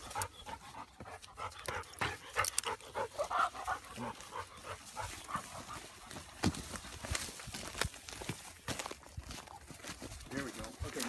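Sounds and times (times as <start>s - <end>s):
dog panting: 0.0s - 6.4s
feet crunching through pine straw: 3.0s - 11.0s.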